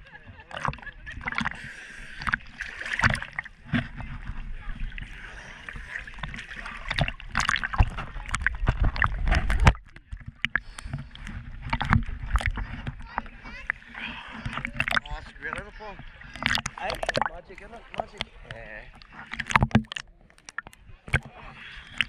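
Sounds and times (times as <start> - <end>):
water splashing against camera: 0.0 - 22.0.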